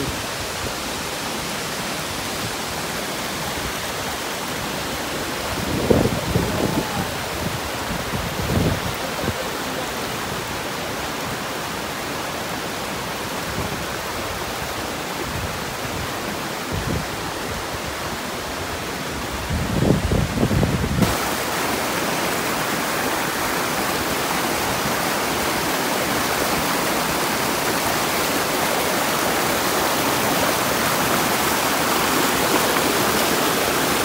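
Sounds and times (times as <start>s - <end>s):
stream running over boulders: 0.0s - 34.0s
waterfall pouring into pool: 21.0s - 34.0s.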